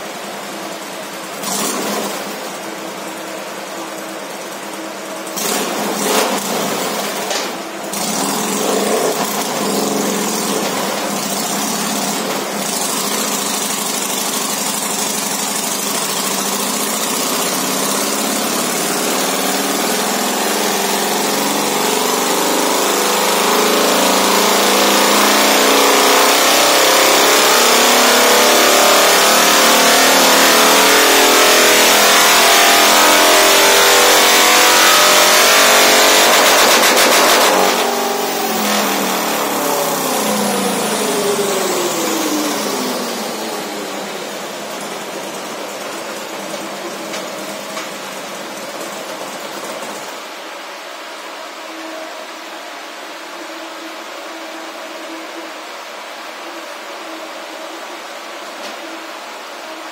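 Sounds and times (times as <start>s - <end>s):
motorcycle engine under throttle: 0.0s - 50.4s.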